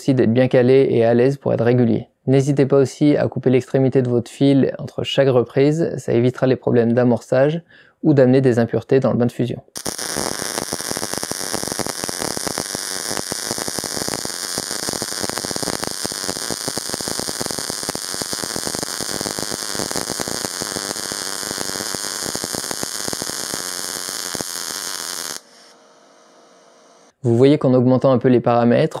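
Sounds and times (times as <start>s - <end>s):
welding arc crackling: 9.8s - 27.1s.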